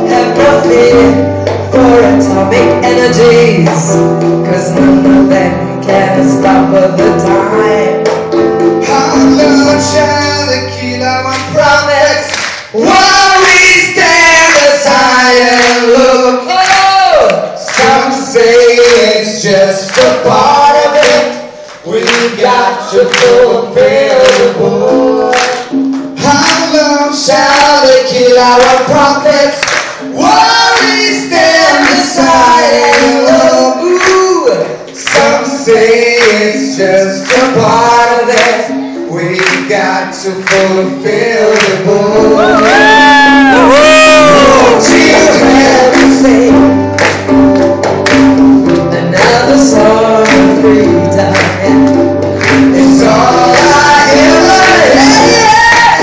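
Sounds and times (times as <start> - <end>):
woman and man singing: 0.0 - 8.1, 8.8 - 46.9, 48.9 - 56.0
drums: 0.0 - 10.5, 11.3 - 56.0
electric guitar: 38.4 - 56.0.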